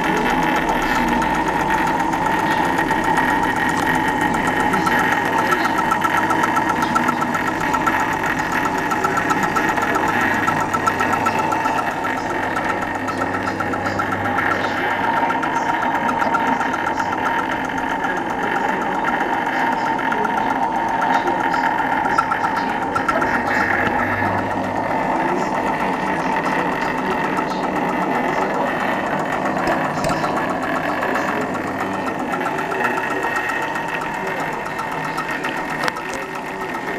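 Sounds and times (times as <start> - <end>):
projector motor whirring: 0.0 - 36.9.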